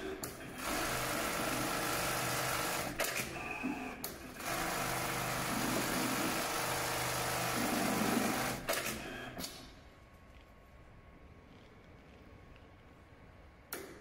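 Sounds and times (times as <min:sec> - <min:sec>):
sewing machine stitching clatter: 0:04.4 - 0:09.0.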